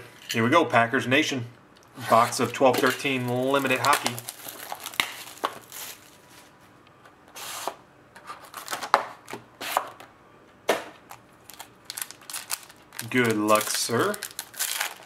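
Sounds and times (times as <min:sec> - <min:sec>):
cardboard rustling: 0:02.0 - 0:06.6.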